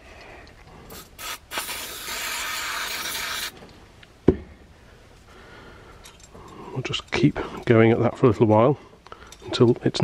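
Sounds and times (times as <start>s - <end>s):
aerosol spray hissing: 0.9s - 3.5s.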